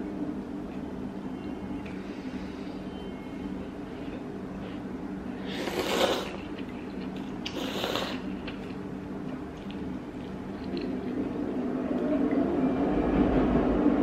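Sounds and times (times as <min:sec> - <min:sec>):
noodles slurped: 0:05.4 - 0:08.8.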